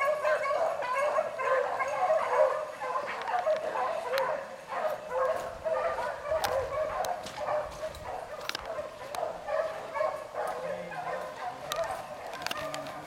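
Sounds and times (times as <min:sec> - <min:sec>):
hounds baying and yipping: 0:00.0 - 0:13.0
sharp clicks: 0:06.4 - 0:09.3, 0:11.7 - 0:13.0.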